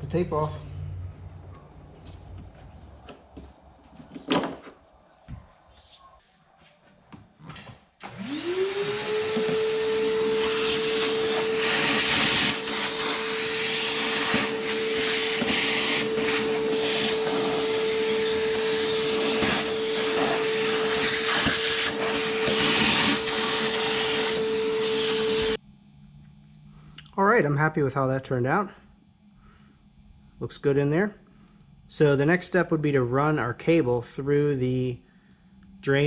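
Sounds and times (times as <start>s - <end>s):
vacuum cleaner motor whining: 7.6s - 25.6s.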